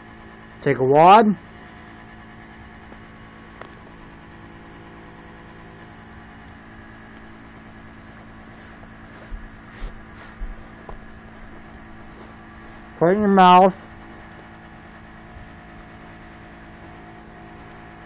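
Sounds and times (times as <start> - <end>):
low electrical hum: 0.0 - 18.0
soft rustles: 7.9 - 13.0.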